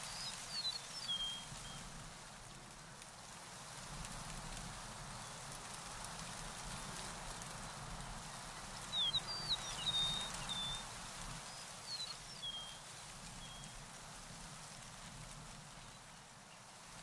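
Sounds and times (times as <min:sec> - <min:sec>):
small bird chirping: 0:08.9 - 0:10.8.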